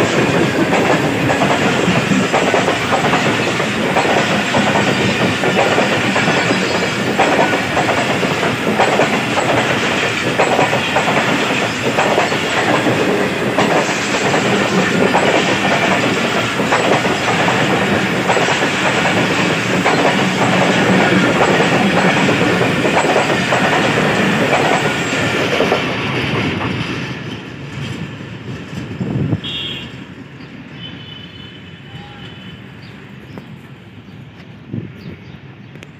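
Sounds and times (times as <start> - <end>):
train wheels clattering over rail joints: 0.0 - 29.2.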